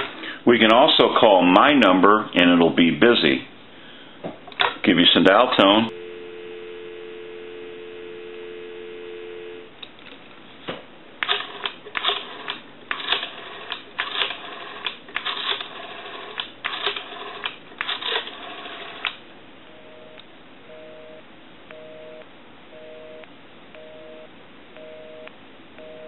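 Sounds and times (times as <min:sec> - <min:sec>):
telephone dial tone: 0:05.9 - 0:09.7, 0:11.2 - 0:26.0
rotary dial pulse clicks: 0:11.2 - 0:19.2.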